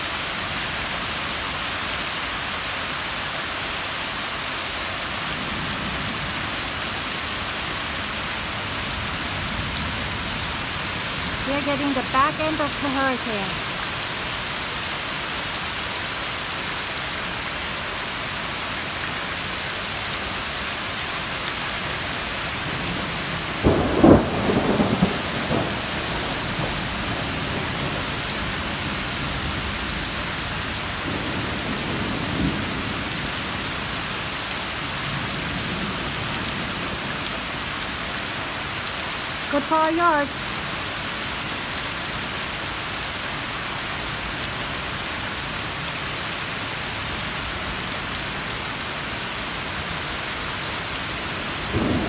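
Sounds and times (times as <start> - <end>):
heavy rain on pavement: 0.0 - 52.0
thunder clap and rumble: 22.6 - 34.0, 51.5 - 52.0.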